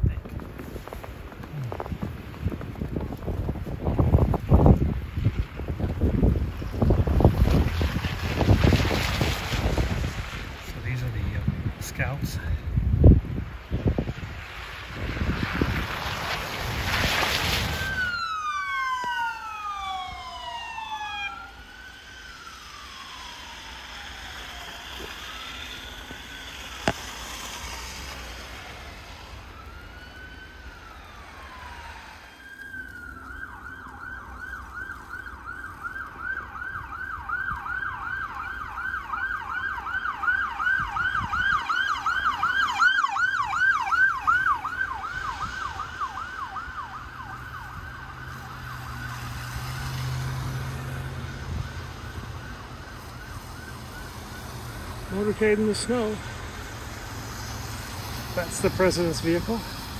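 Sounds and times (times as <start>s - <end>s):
police siren wail and yelp: 12.0s - 59.9s.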